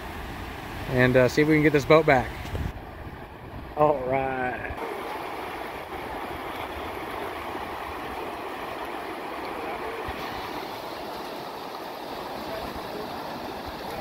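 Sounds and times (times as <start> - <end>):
river rapids rushing over rocks: 4.8 - 14.0.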